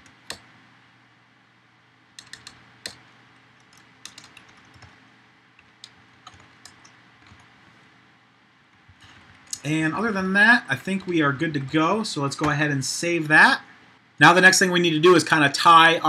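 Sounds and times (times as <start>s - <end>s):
keyboard typing: 2.2s - 3.0s, 3.6s - 5.0s, 5.6s - 7.5s.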